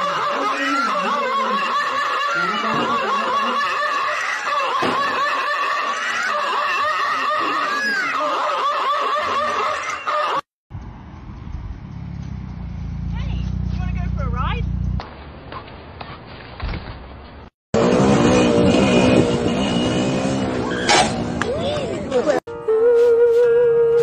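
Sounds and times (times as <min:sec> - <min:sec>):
car engine rumbling: 0:10.7 - 0:15.5.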